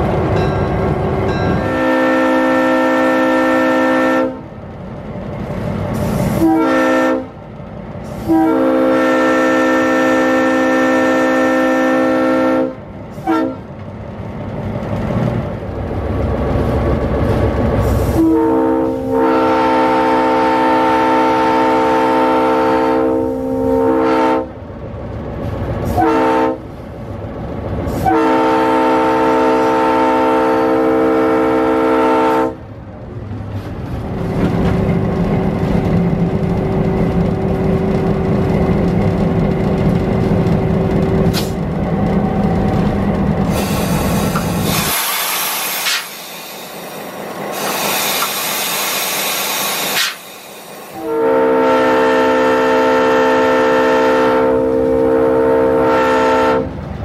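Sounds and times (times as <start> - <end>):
locomotive air horn blasts: 1.5 - 4.5, 6.1 - 7.4, 8.1 - 13.7, 18.0 - 24.6, 25.8 - 26.7, 27.9 - 32.6, 50.9 - 56.8.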